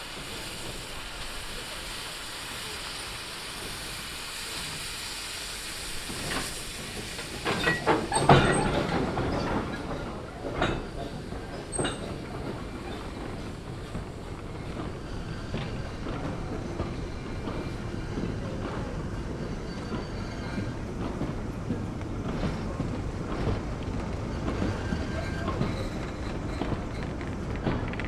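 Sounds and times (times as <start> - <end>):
steam hissing: 0.0 - 21.6, 22.4 - 27.0
wagon wheels and couplings clanking: 6.3 - 13.4.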